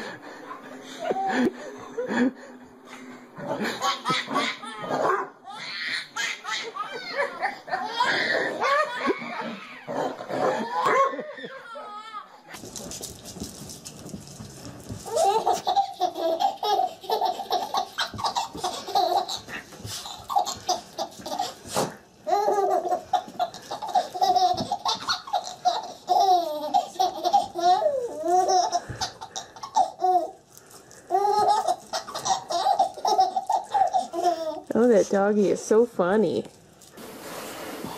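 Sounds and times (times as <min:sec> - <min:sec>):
baby laughing: 0:03.5 - 0:12.3, 0:15.1 - 0:30.4, 0:31.1 - 0:34.7.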